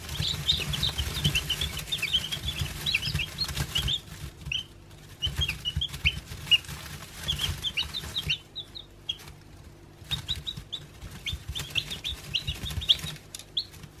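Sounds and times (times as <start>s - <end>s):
chicks peeping: 0.0s - 14.0s.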